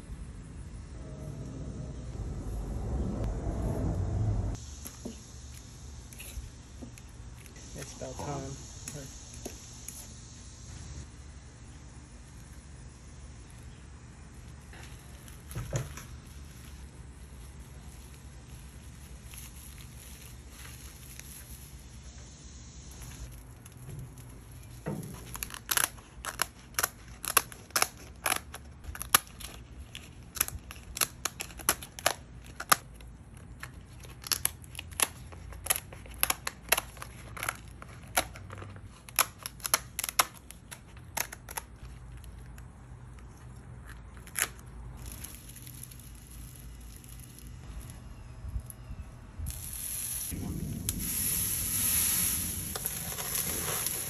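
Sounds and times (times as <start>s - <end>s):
shears snipping through shells: 25.2s - 33.0s.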